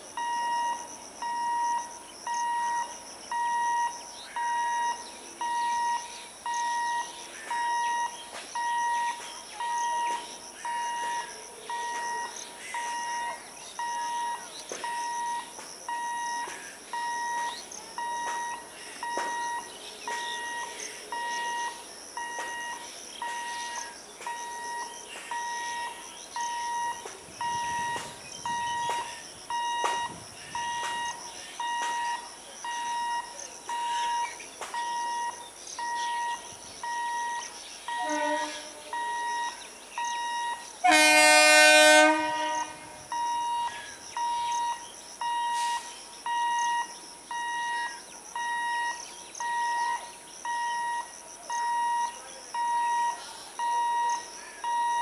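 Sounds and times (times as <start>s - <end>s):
level crossing alarm beeping: 0.2s - 55.0s
train rumble: 26.8s - 31.2s.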